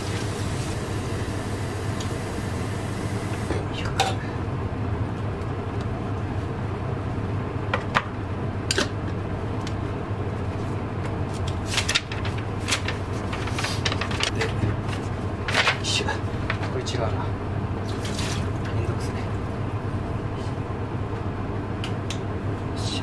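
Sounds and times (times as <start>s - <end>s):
steady low hum: 0.0s - 23.0s
paper rustling: 11.3s - 15.8s.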